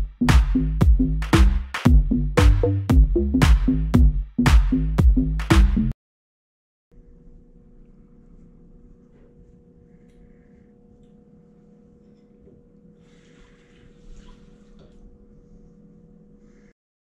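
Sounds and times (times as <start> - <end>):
steady low hum: 6.9 - 16.8.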